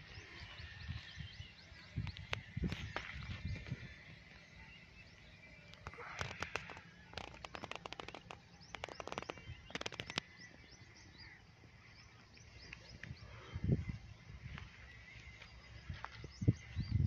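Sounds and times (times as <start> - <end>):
birds chirping faintly: 0.0 - 17.0
bursts of rapid clicks: 5.7 - 10.3.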